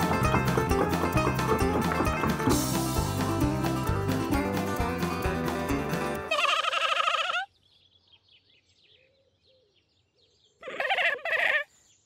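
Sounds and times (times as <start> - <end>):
cartoon lamb bleating: 6.3 - 7.5
faint birdsong chirping: 6.3 - 12.0.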